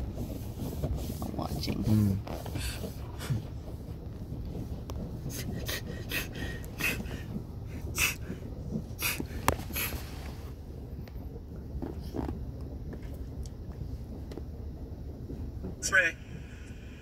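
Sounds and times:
low rumble inside car wash: 0.0 - 17.0
brushes and spray swishing: 0.2 - 3.3.

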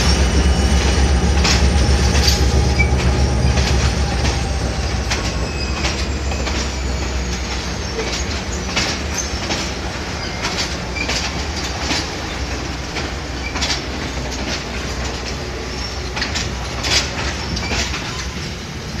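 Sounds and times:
train rumbling over bridge: 0.0 - 19.0
wheels clacking over rail joints: 0.0 - 19.0
faint wheel squeals: 4.3 - 11.2.

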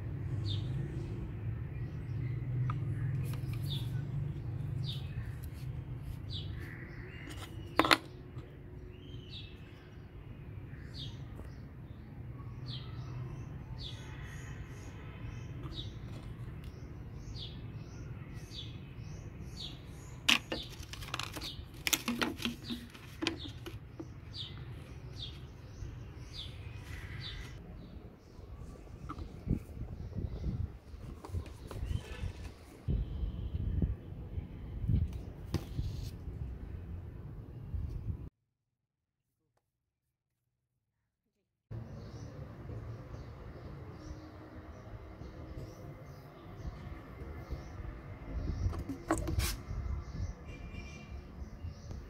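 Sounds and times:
birds chirping: 0.3 - 33.4
plastic pipes knocking and clacking: 20.3 - 24.1.

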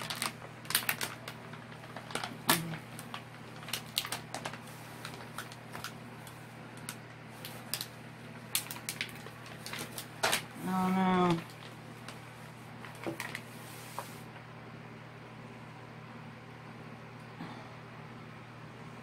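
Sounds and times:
plastic packaging crinkling: 0.0 - 14.3.

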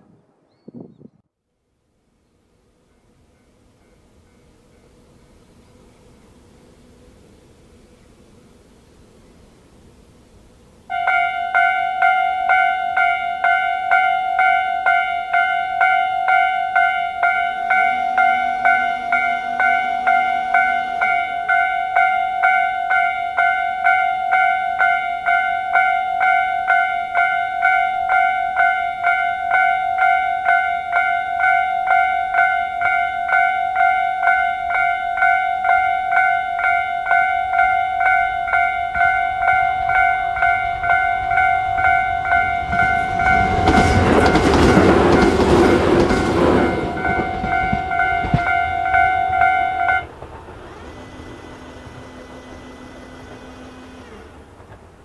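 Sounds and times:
electric train passing: 1.8 - 55.0
level crossing warning bell dinging: 10.9 - 50.2.

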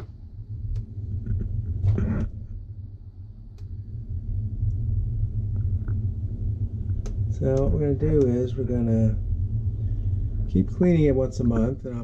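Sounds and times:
low rumble of handheld camera: 0.0 - 12.0.

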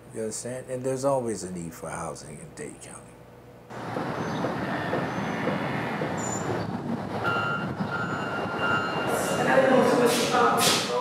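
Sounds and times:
street traffic: 3.7 - 11.0
reversing beeper beeping: 7.2 - 10.0.

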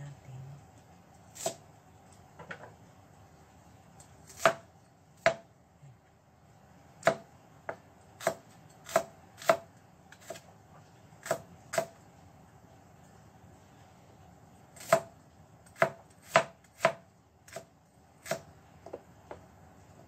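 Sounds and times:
knife chopping on cutting board: 4.3 - 4.6, 5.2 - 5.4, 7.0 - 10.4, 11.2 - 12.0, 14.8 - 15.1, 15.8 - 19.4.

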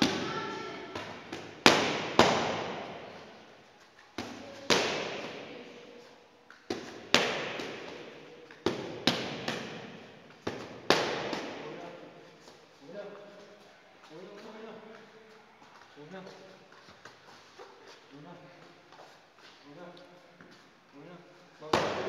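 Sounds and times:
punches smacking focus mitts: 1.0 - 3.0, 6.7 - 11.6.

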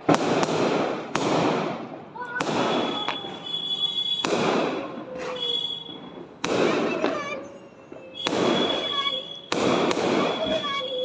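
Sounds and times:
fireworks bangs: 0.0 - 11.0
fireworks crackle: 0.0 - 11.0
high thin whistling: 2.6 - 4.3, 5.2 - 6.1, 7.4 - 9.6.

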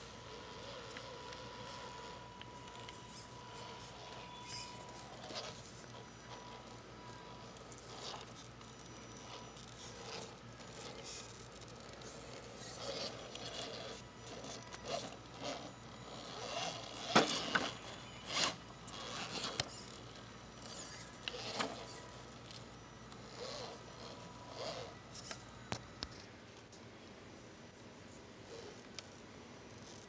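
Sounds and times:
faint steady motor whine: 0.0 - 30.0
tyres scraping and knocking on rocks: 12.3 - 20.1.

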